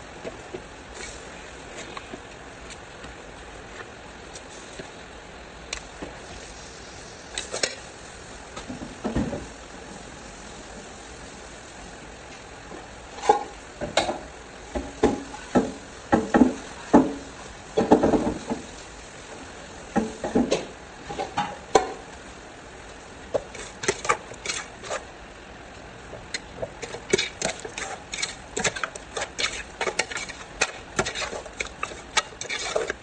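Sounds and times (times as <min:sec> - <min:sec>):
meat sizzling in a metal pot: 0:06.2 - 0:08.4, 0:23.2 - 0:25.1, 0:26.3 - 0:33.0
metal ladle clanking and scraping: 0:23.4 - 0:25.1, 0:26.3 - 0:33.0.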